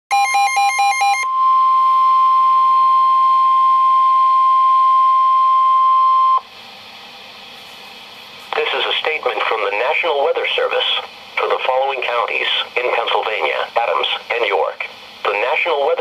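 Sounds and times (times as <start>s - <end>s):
steady alarm tone: 0.1s - 6.5s
faint radio hiss: 6.6s - 16.0s.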